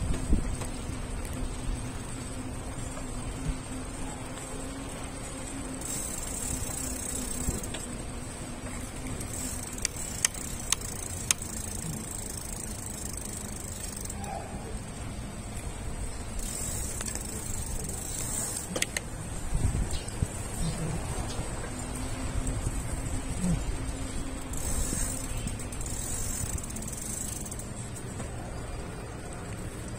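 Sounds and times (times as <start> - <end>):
bicycle freewheel ticking: 0.0 - 29.9
bicycle tyres rumbling on pavement: 0.0 - 29.9
sharp clicks: 9.3 - 13.9, 16.8 - 19.1.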